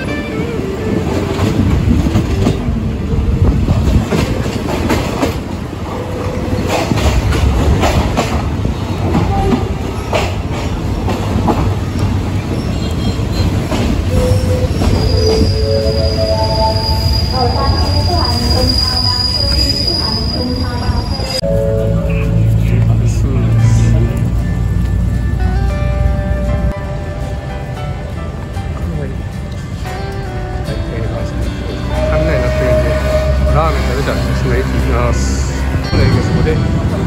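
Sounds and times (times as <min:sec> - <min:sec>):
train wheels rumbling: 0:00.0 - 0:37.0
clacks over rail joints: 0:03.4 - 0:05.6, 0:06.3 - 0:14.2
high wheel squeal: 0:12.5 - 0:22.5, 0:31.9 - 0:34.3.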